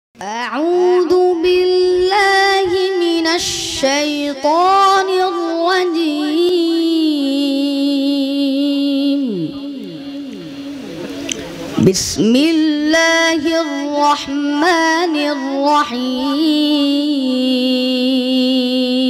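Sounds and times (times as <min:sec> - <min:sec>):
boy chanting into a microphone: 0:00.2 - 0:19.0.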